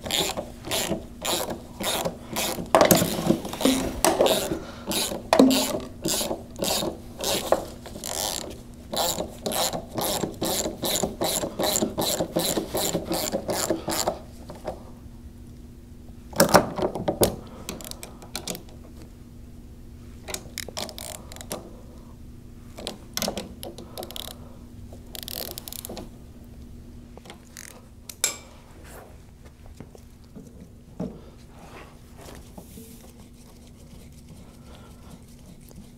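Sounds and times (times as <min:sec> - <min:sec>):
ratchet wrench clicking: 0:04.3 - 0:14.1, 0:24.0 - 0:24.4, 0:25.1 - 0:25.9.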